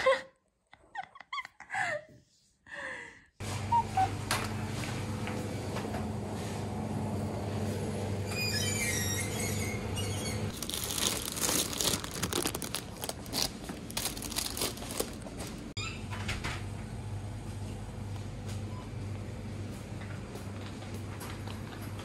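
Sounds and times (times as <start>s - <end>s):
plastic packaging crinkling: 10.5s - 15.8s.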